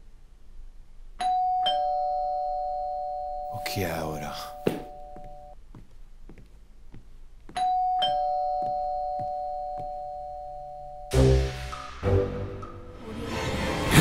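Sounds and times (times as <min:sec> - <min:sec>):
doorbell ding-dong chime: 0:01.2 - 0:03.6, 0:07.6 - 0:11.1
footsteps on hard floor: 0:04.6 - 0:10.0
loud music: 0:11.1 - 0:14.0.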